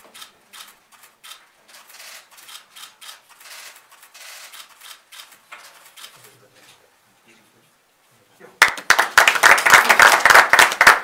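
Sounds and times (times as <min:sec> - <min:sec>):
camera shutters clicking: 0:00.1 - 0:06.2.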